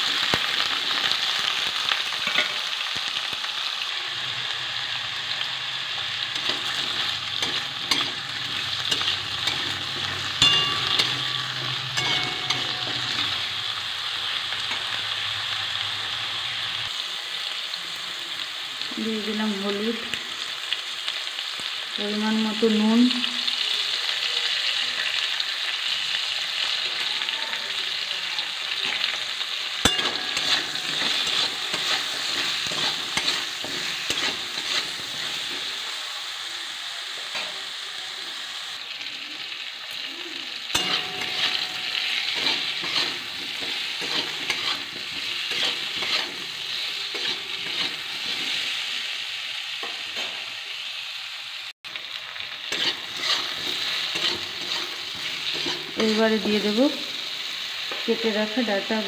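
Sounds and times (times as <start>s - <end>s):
vegetables sizzling in hot oil: 0.0s - 59.0s
spatula scraping metal pan: 6.2s - 13.6s, 29.8s - 35.7s, 40.7s - 48.8s, 52.7s - 56.8s.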